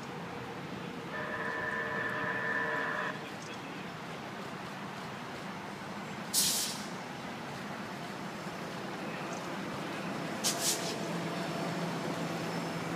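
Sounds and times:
train rumbling: 0:00.0 - 0:12.9
short high hisses: 0:06.3 - 0:06.9, 0:10.4 - 0:11.0.

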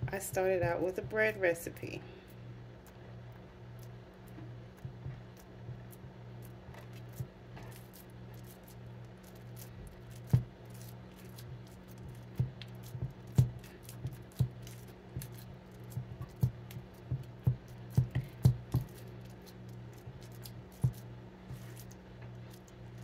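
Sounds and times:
steady low hum: 0:00.0 - 0:23.0
dough tapping on wooden board: 0:13.3 - 0:13.6, 0:16.0 - 0:18.9.

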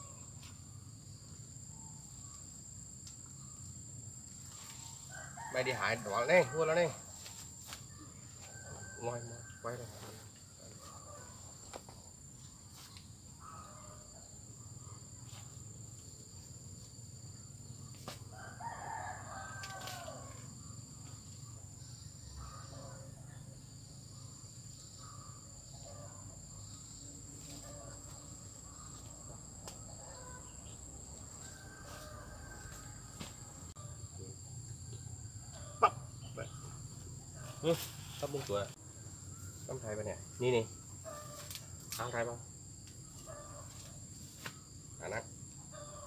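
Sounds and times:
rooster crowing: 0:05.0 - 0:07.1, 0:08.4 - 0:09.8, 0:18.3 - 0:20.6, 0:22.2 - 0:23.8, 0:29.4 - 0:37.6, 0:45.7 - 0:46.0.

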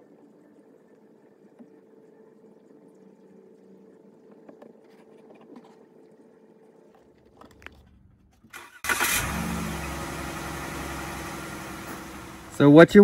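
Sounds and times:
engine starting and idling: 0:08.5 - 0:12.6.

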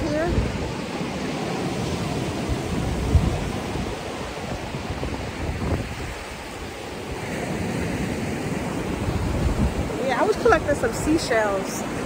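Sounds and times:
surf washing on beach: 0:00.0 - 0:12.0
wind buffeting microphone: 0:00.0 - 0:12.0.

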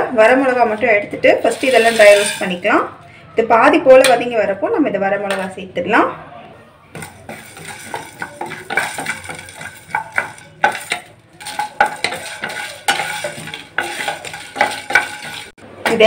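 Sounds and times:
spatula scraping frying pan: 0:00.3 - 0:02.8, 0:06.9 - 0:16.0
seeds rattling against pan: 0:00.5 - 0:02.6, 0:07.0 - 0:15.6.

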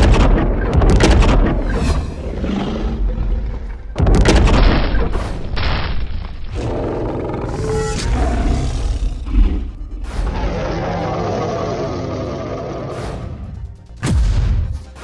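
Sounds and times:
monster roaring: 0:06.5 - 0:13.4.

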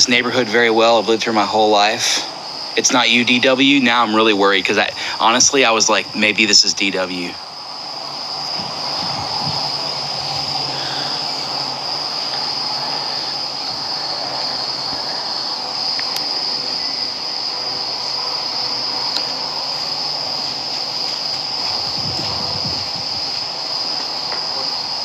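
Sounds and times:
night insects chorus: 0:00.0 - 0:25.0.

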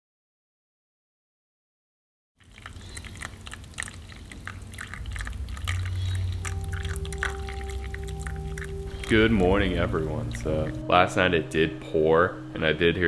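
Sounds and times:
coffee pouring into a paper cup: 0:02.4 - 0:10.8
steady low tone: 0:05.0 - 0:13.0.

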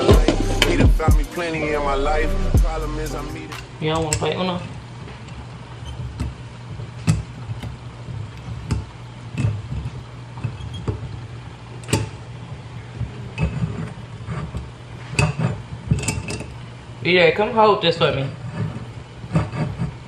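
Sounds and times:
steady low hum: 0:00.0 - 0:17.6.

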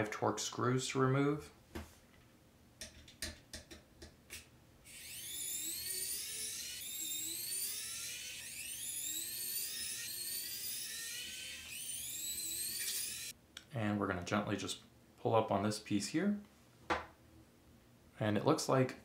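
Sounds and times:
electric screwdriver motor whine: 0:04.9 - 0:13.3.

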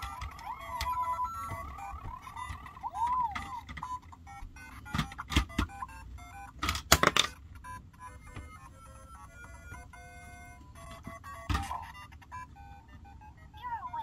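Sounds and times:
plastic clacks: 0:00.0 - 0:06.0, 0:06.6 - 0:08.6.

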